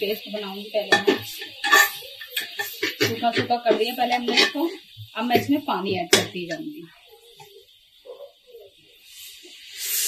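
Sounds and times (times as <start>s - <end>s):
spices sizzling: 0.0s - 10.0s
steel spatula scraping metal pot: 0.9s - 6.6s.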